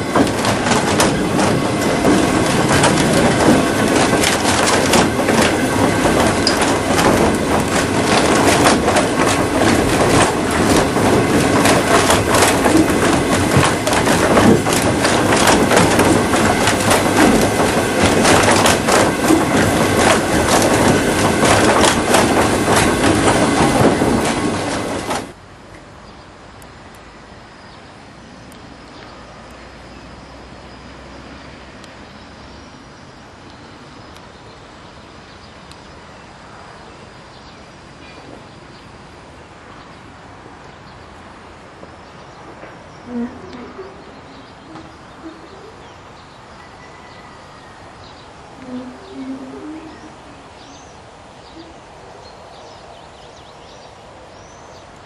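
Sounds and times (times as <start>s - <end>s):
rattling and rumbling with clicks: 0.0s - 25.4s.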